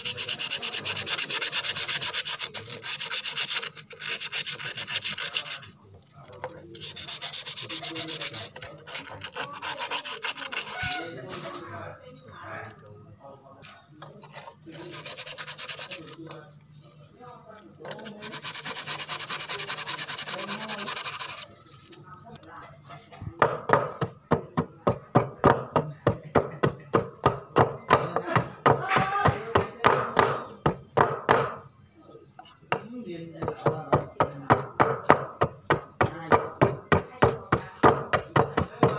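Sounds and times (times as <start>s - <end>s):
knife blade sanded by hand: 0.0s - 5.8s, 6.7s - 11.2s, 14.3s - 16.3s, 17.9s - 21.5s.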